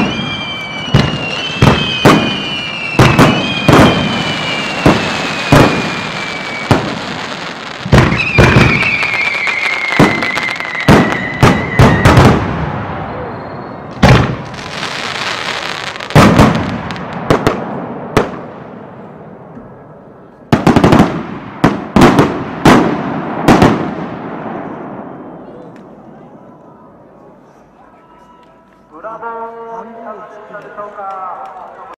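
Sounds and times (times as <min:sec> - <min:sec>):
fireworks crackle: 0:00.0 - 0:18.7
fireworks bangs: 0:00.0 - 0:26.4
high whistle gliding downward: 0:08.1 - 0:12.2, 0:12.9 - 0:14.0
rumbling echo: 0:16.2 - 0:27.1.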